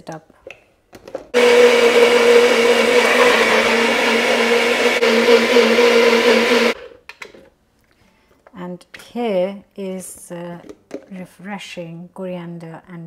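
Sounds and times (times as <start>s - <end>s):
blender running: 1.4s - 6.8s.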